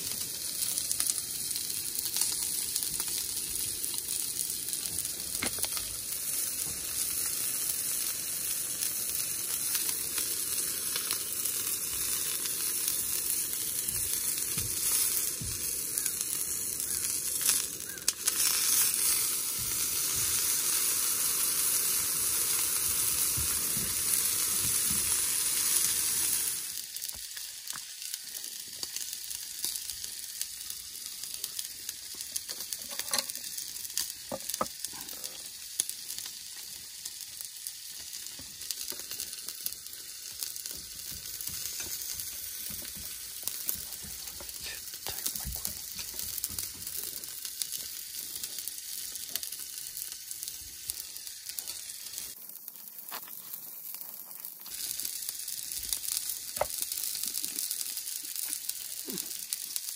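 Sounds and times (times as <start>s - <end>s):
food sizzling in a pan: 0.0s - 59.9s
small pops: 4.8s - 6.0s, 38.0s - 49.5s, 56.2s - 59.6s.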